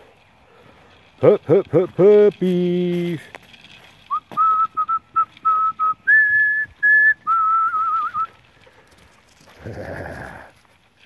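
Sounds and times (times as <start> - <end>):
person whistling: 4.1 - 8.4.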